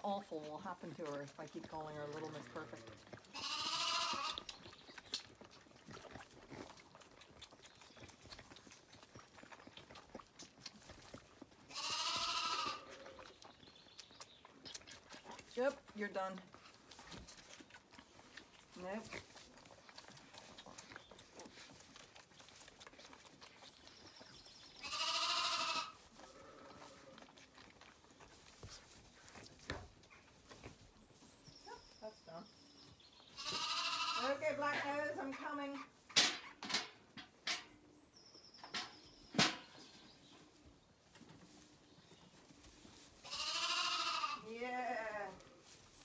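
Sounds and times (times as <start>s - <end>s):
lambs sucking bottle teats: 0.0s - 31.5s, 33.0s - 36.6s, 41.4s - 44.4s
lamb bleating: 2.4s - 4.4s, 11.7s - 13.2s, 24.8s - 27.2s, 33.4s - 34.4s, 43.2s - 44.4s
rustling in straw: 24.8s - 27.2s, 40.3s - 46.0s.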